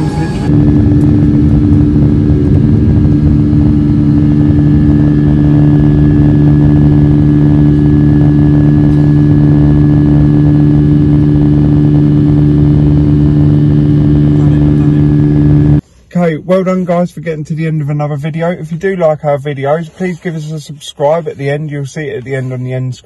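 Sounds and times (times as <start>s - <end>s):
aircraft engines droning: 0.0s - 15.8s.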